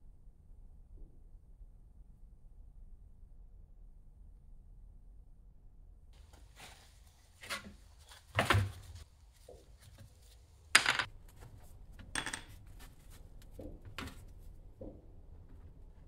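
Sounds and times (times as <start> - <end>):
wooden knocks on metal tray: 10.8 - 11.1.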